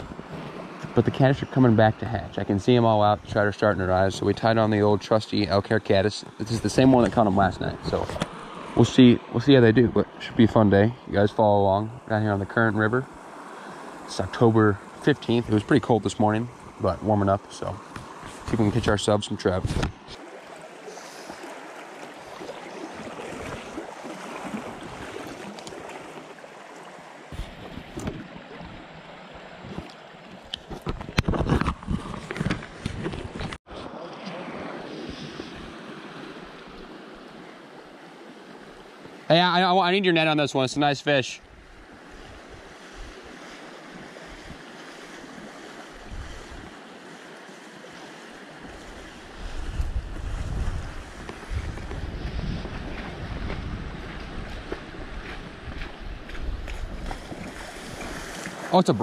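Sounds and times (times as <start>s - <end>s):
river water running: 0.0s - 59.0s
wind buffeting microphone: 46.0s - 46.8s, 48.6s - 58.6s.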